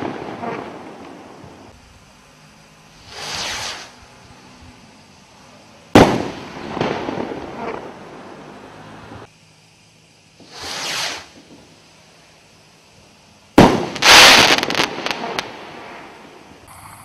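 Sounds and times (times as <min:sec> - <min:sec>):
firework crackling: 0:00.0 - 0:01.8, 0:02.9 - 0:04.2, 0:05.9 - 0:09.3, 0:10.4 - 0:12.4, 0:13.5 - 0:17.0
firework rocket whoosh: 0:03.0 - 0:04.0, 0:10.4 - 0:11.5, 0:13.6 - 0:16.2.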